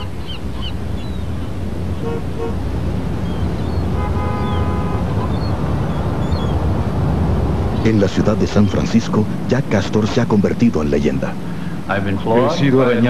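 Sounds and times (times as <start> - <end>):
rumble of passing vehicles: 0.0 - 13.0
car horn toots: 2.0 - 2.6, 3.9 - 5.3.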